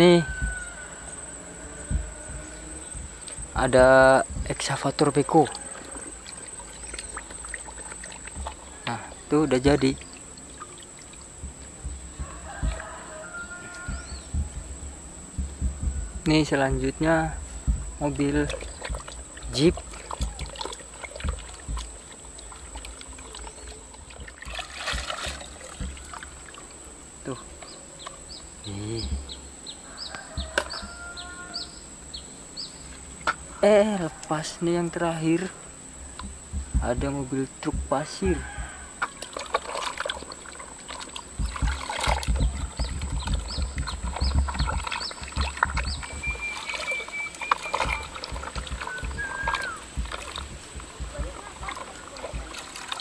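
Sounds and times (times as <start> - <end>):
dull knocks: 0.0 - 1.0, 1.8 - 10.1, 11.3 - 26.6, 30.1 - 31.6, 36.0 - 40.3, 40.9 - 53.0
water sloshing and splashing: 0.0 - 28.4, 32.8 - 53.0
water dripping: 0.0 - 29.4, 30.1 - 31.7, 32.8 - 53.0.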